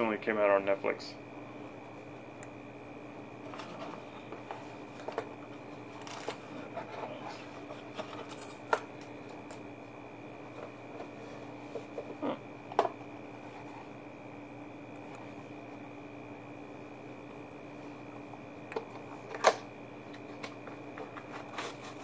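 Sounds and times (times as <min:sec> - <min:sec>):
faint hum: 0:00.0 - 0:22.0
packaging rustling and crinkling: 0:05.9 - 0:06.9.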